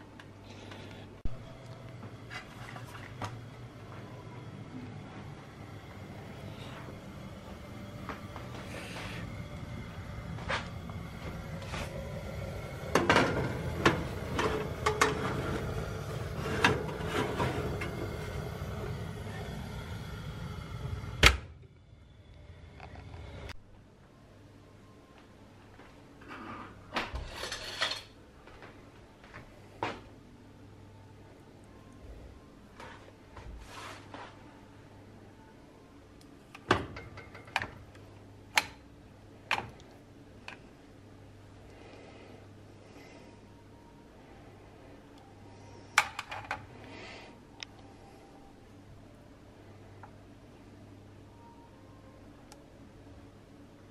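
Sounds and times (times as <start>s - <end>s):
steady low rumble: 1.2s - 24.0s.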